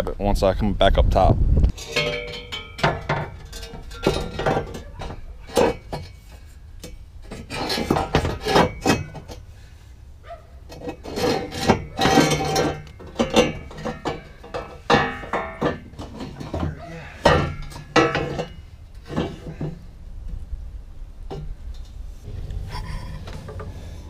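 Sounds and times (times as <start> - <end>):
ringing metal knocks: 1.7 - 9.4, 10.7 - 19.8
metal tubes scraping and clanking: 1.7 - 9.8, 10.6 - 20.4, 21.2 - 24.0.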